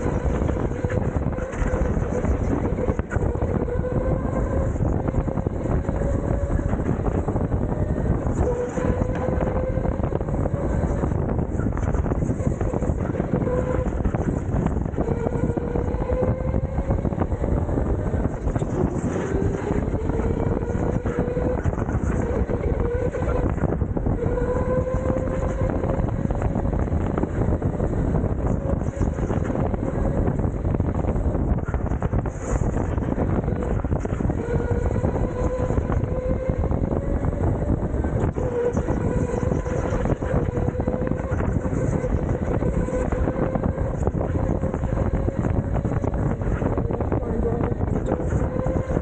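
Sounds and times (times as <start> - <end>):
electric go-kart motor whine: 0.0 - 49.0
rattling rushing noise: 0.0 - 49.0
tyres rumbling: 0.0 - 49.0
wind buffeting microphone: 0.0 - 49.0.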